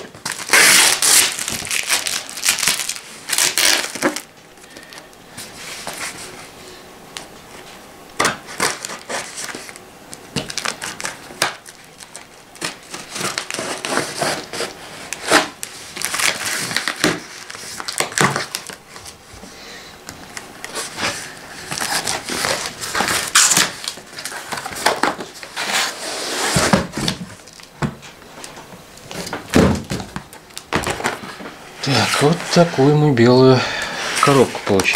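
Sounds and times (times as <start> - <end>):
packing tape tearing: 0.0 - 5.1, 8.2 - 19.2, 20.3 - 27.7.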